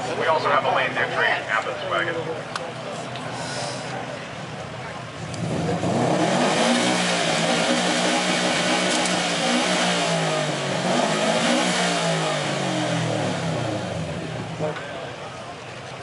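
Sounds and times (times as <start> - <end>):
car engine revving: 5.1 - 14.8.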